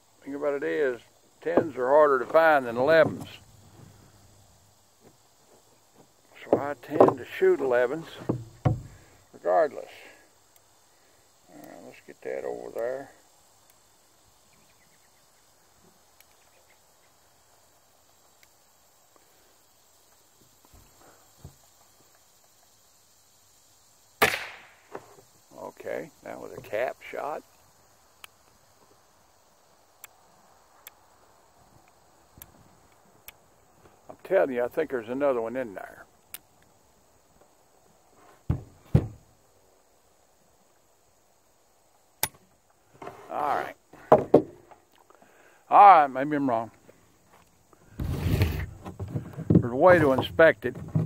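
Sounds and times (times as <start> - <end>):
crickets chirping: 0.0 - 51.0
faint clicks: 18.2 - 19.3, 30.0 - 30.2.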